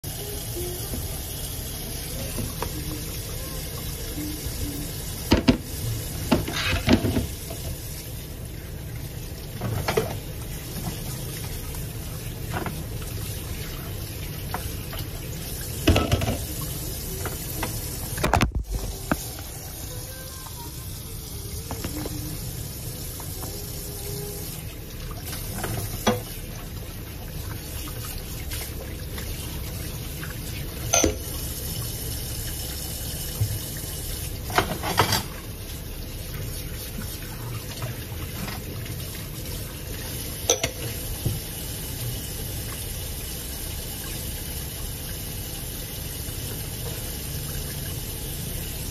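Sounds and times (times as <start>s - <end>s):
tap running into sink: 5.3s - 7.8s, 15.8s - 16.6s
dishes clinking and knocking: 15.8s - 16.5s, 30.9s - 31.3s, 34.5s - 35.3s, 40.5s - 40.9s.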